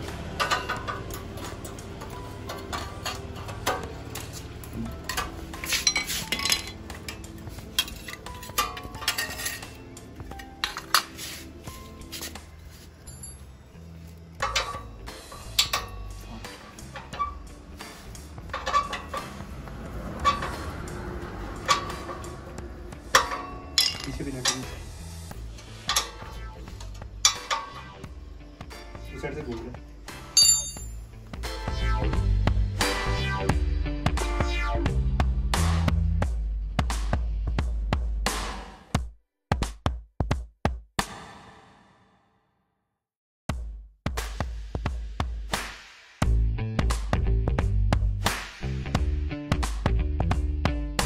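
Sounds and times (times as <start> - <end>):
spanner clinking on metal: 4.9 - 9.9, 14.4 - 16.2, 18.4 - 19.5, 21.6 - 22.4, 23.1 - 24.9, 25.8 - 28.0, 30.3 - 31.0.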